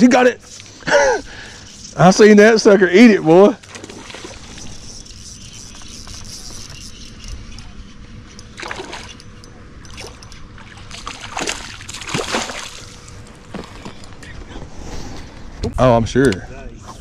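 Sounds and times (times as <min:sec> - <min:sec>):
water sloshing around boat: 0:00.4 - 0:14.6
fish splashing at surface: 0:10.8 - 0:13.0.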